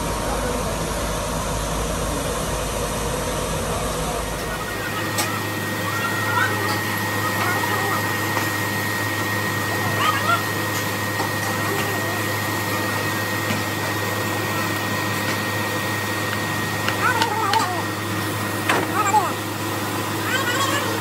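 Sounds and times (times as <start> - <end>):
furnace air blower roaring: 0.0 - 21.0
men calling: 4.4 - 21.0.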